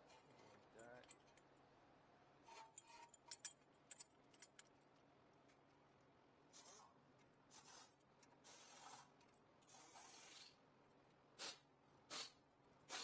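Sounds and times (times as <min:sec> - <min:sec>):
light metal clinks: 0:02.7 - 0:04.8.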